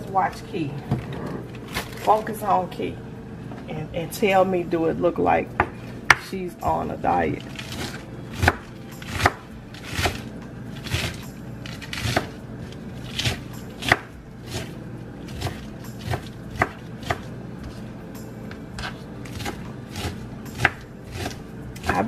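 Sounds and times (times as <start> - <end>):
knife chopping on wooden board: 7.6 - 10.2, 10.8 - 12.3, 13.1 - 14.7, 15.3 - 17.8, 18.8 - 22.0.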